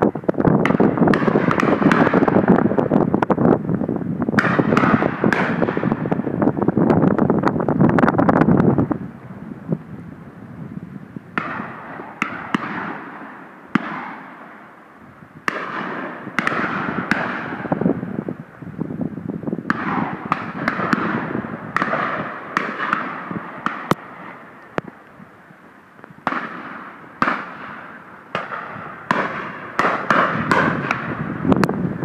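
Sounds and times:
shotgun shots echoing: 0.6s - 2.6s, 4.4s - 6.2s, 11.4s - 14.7s, 15.4s - 17.8s, 19.7s - 24.4s, 26.2s - 31.2s.

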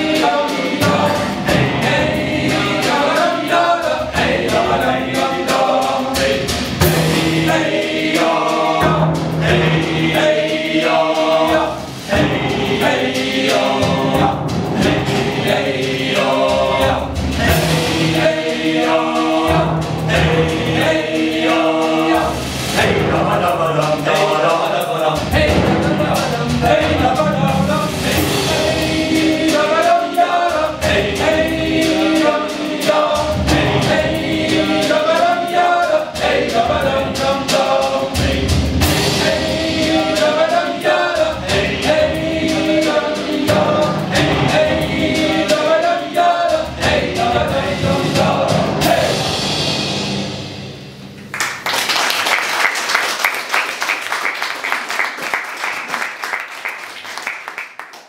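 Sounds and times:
choir singing: 0.0s - 51.3s
audience applauding: 51.3s - 58.0s.

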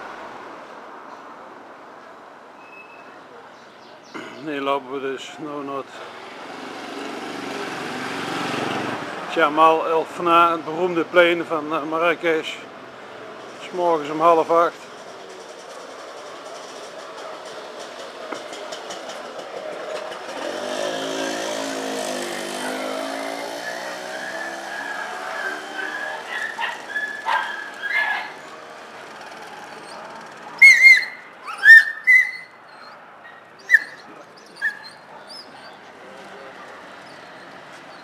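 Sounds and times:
motor vehicle passing: 5.9s - 10.9s, 14.8s - 38.0s
dog barking sharply: 25.0s - 28.4s.

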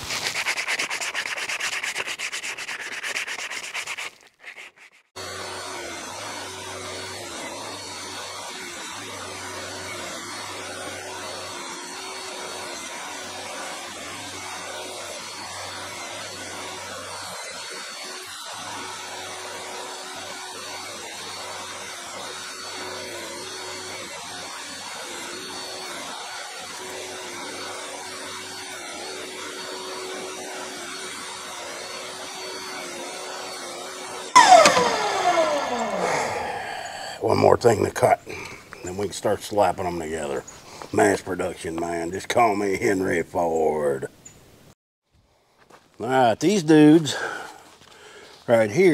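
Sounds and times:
table saw running: 0.0s - 3.9s, 5.2s - 40.4s
saw blade spinning down: 5.2s - 37.9s.

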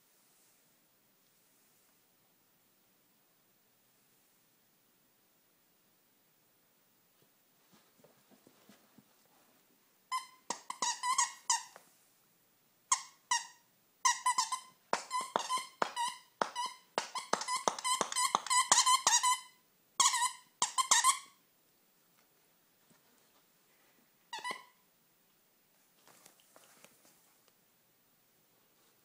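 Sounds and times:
dog toy squeaking: 10.1s - 11.8s, 12.9s - 21.4s, 24.3s - 24.8s.

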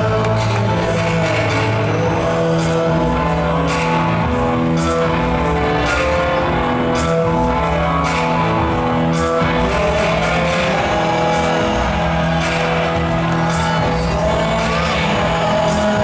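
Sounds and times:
heavy rock song over loudspeakers: 0.0s - 16.0s.

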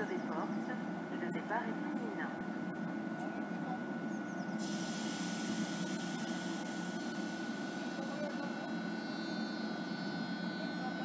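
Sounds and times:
constant high tone: 0.0s - 11.0s
train low rumble: 0.0s - 11.0s
hiss: 4.6s - 7.0s
thin high whining tones: 5.3s - 11.0s.

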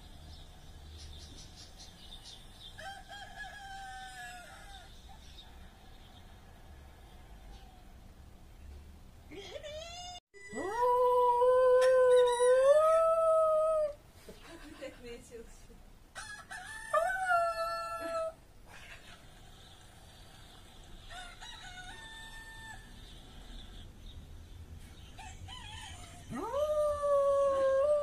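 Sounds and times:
small dog howling: 10.4s - 14.0s, 26.3s - 28.0s.

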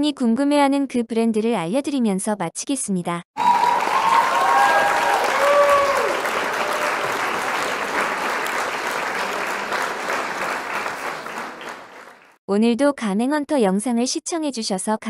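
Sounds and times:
crowd applause: 3.4s - 12.4s
crowd cheering: 3.4s - 12.4s.

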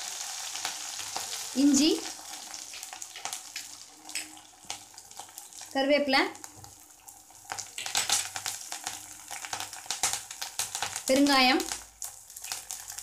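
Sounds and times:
oil sizzling and crackling: 0.0s - 13.0s.

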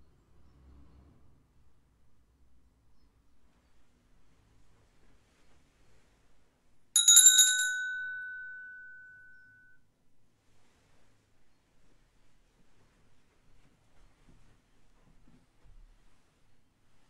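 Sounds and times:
hand bell ringing: 7.0s - 9.7s.

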